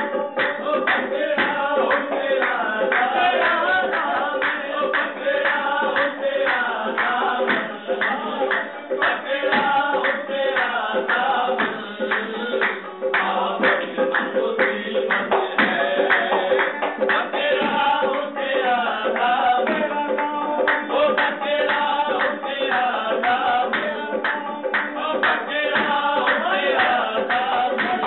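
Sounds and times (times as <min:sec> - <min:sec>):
men singing together: 0:00.0 - 0:28.0
rhythmic hand clapping: 0:00.0 - 0:28.0
tabla strokes: 0:00.0 - 0:28.0.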